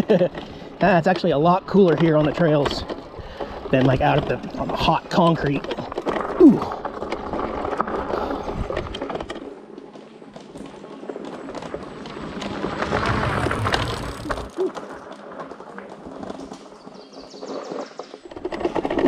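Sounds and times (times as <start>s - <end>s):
bike tyres rolling over dirt: 0.0s - 19.0s.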